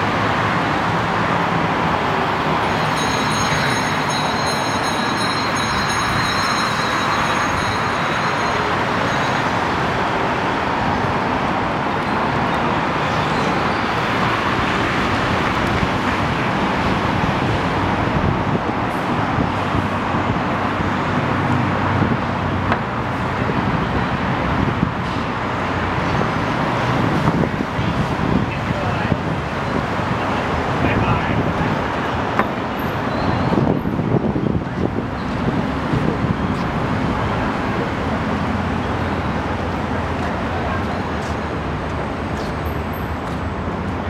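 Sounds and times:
city road traffic drone: 0:00.0 - 0:44.0
high steady tones: 0:02.6 - 0:09.7.

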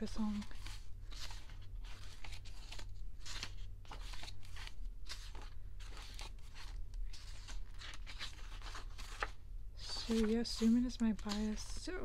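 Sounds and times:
low steady hum: 0:00.0 - 0:12.0
pages turning and rustling: 0:00.0 - 0:12.0.

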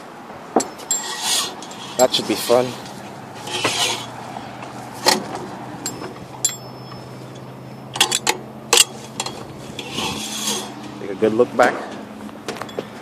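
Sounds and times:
metallic clicks and clinks: 0:05.8 - 0:10.0.

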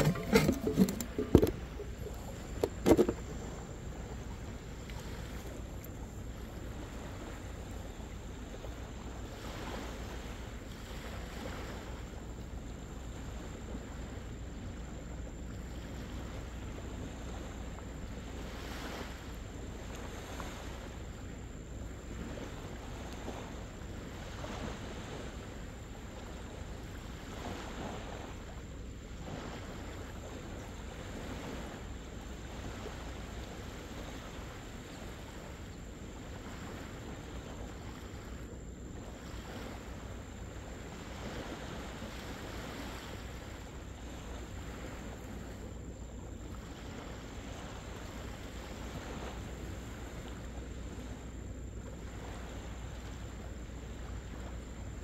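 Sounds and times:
small surf washing onto beach: 0:00.0 - 0:12.3.

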